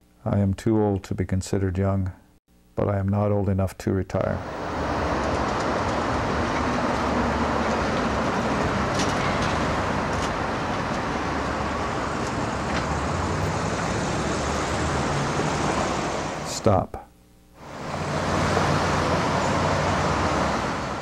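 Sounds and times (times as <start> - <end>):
low vehicle hum: 4.4 - 16.5, 17.6 - 21.0
road traffic hiss: 4.4 - 16.7, 17.6 - 21.0.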